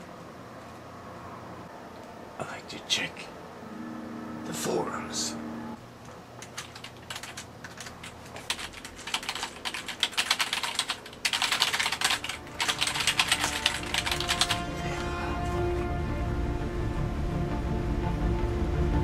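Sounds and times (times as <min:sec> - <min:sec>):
fast typing on keyboard: 0:06.4 - 0:15.2
music: 0:12.2 - 0:19.0.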